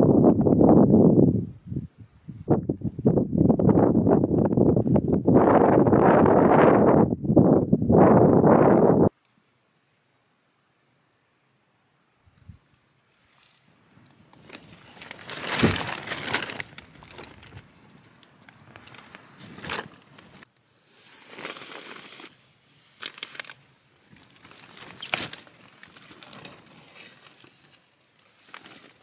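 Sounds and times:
tent fabric rustling: 13.1s - 29.0s.

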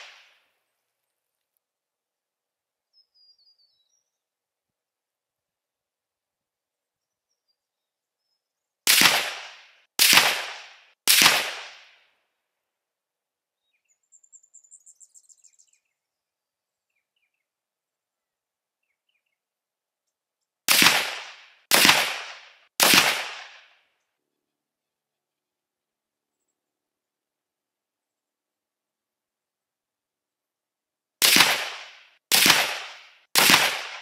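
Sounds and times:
rifle shots: 8.9s - 12.0s, 20.7s - 23.8s, 31.2s - 34.0s.

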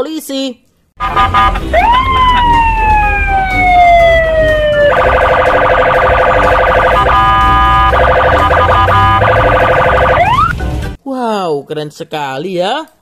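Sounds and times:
police siren wail and warble: 1.0s - 10.6s
short steady siren tone: 1.1s - 10.6s.

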